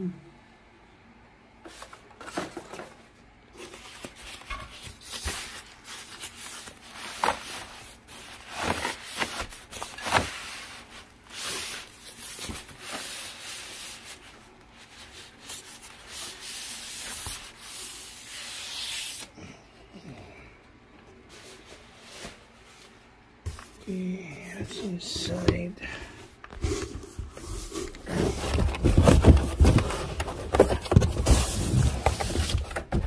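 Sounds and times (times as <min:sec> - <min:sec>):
fabric bags rustling on cardboard: 0:03.6 - 0:19.3, 0:25.1 - 0:33.0.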